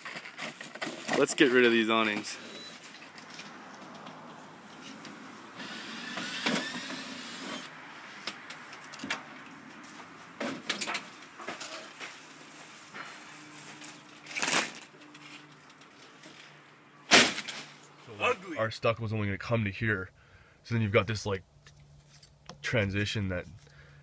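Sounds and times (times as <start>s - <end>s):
cordless drill backing out screws: 5.6s - 7.7s.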